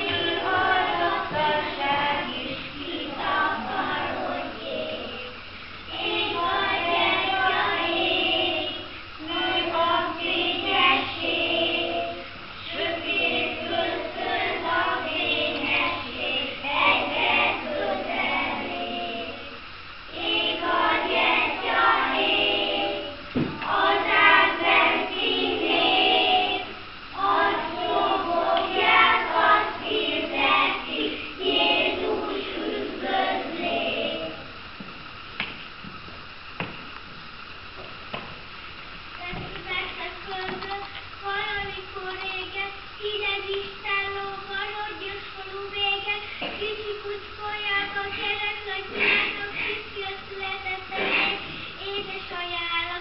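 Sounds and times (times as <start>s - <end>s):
young children singing: 0.0s - 34.6s, 39.2s - 53.0s
single knock: 23.4s - 23.7s.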